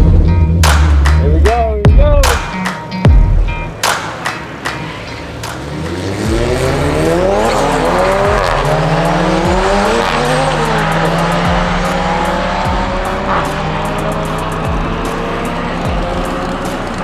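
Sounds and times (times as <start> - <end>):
car engine accelerating through gears: 4.7 - 17.0.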